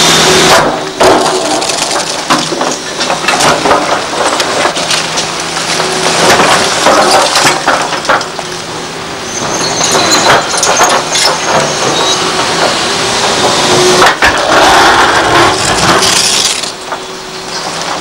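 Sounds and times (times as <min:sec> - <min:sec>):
diesel engine droning: 0:00.0 - 0:18.0
brief high squeals: 0:09.3 - 0:10.6.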